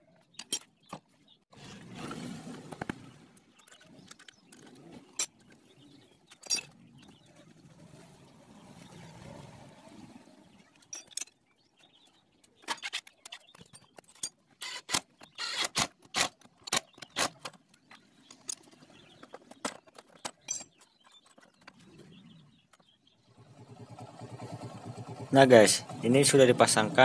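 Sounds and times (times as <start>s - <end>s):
metallic clicks of tool and engine parts: 0.3s - 1.0s, 6.3s - 6.8s, 10.8s - 11.4s, 12.4s - 18.8s, 19.5s - 21.8s.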